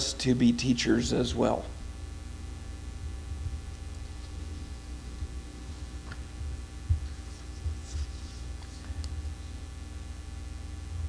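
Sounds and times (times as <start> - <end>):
low room hum: 0.0 - 11.0.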